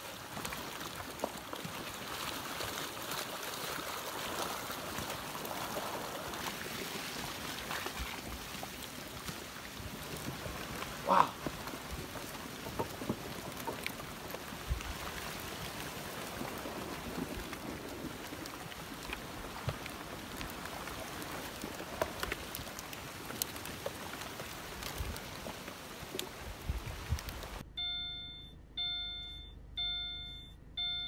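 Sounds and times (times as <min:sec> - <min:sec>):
crackle of wooden knocks: 0:00.0 - 0:27.6
rushing water: 0:00.0 - 0:27.6
electronic chime: 0:27.8 - 0:31.0.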